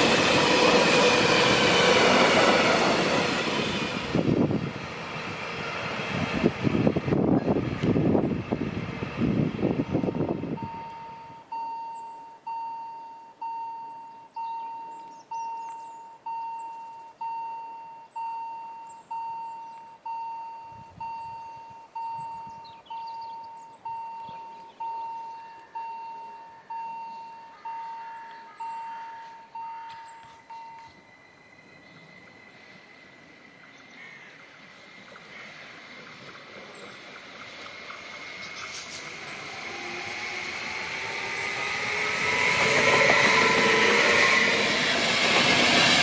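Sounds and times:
freight train rumble: 0.0s - 12.0s, 20.6s - 46.0s
level-crossing warning bell ringing: 10.6s - 33.3s.

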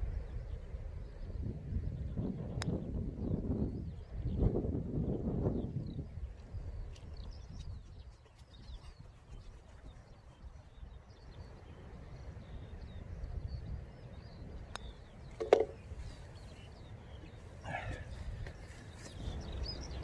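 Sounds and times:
small birds chirping: 0.0s - 20.0s
wind rumbling on microphone: 0.0s - 20.0s
putter tapping golf ball: 14.7s - 15.8s
golf ball dropping into cup: 15.4s - 15.8s.

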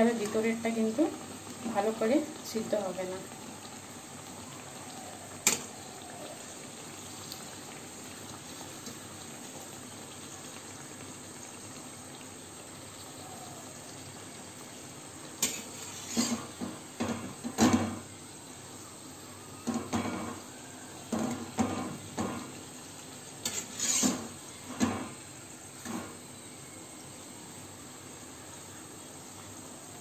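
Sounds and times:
oil sizzling: 0.0s - 30.0s
metal spatula scraping and knocking: 15.4s - 17.9s, 23.4s - 25.1s.

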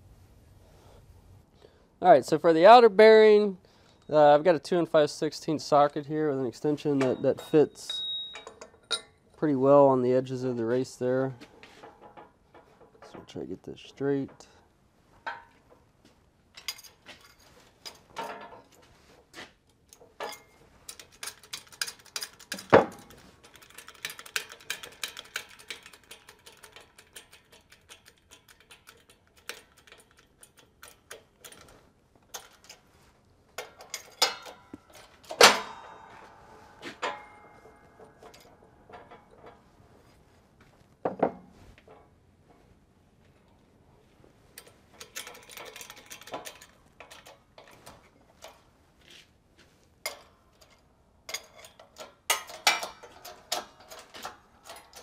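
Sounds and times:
metal clinks and knocks: 6.8s - 9.4s, 10.7s - 15.9s, 16.5s - 42.7s, 44.5s - 48.7s, 50.0s - 55.0s
loud metal clank: 35.3s - 36.4s.

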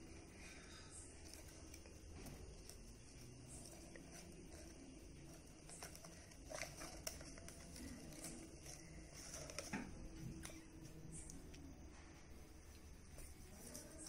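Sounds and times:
paper rustling: 1.2s - 11.7s, 12.6s - 14.0s.

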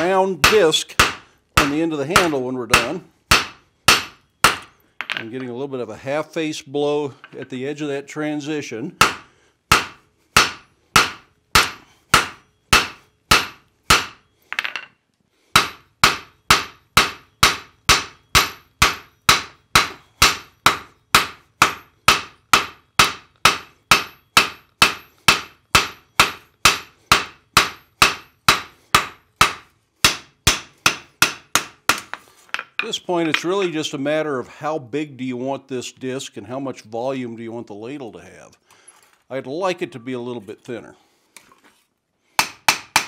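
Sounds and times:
hammer striking hot iron on anvil: 0.0s - 5.2s, 9.0s - 14.8s, 15.6s - 32.2s, 42.4s - 43.0s.

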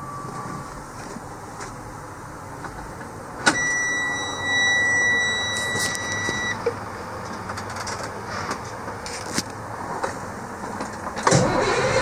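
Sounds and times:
high electronic warning beep: 3.5s - 6.6s.

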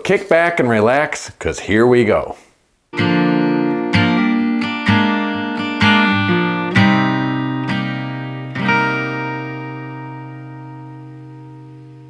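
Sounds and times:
acoustic guitar strummed chords: 2.9s - 12.0s.

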